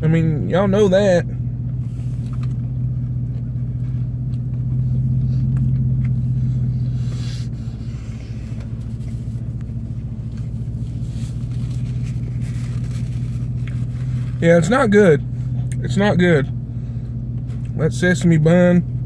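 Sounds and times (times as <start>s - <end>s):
vehicle engine idling: 0.0s - 19.0s
paper rustling: 10.9s - 14.4s.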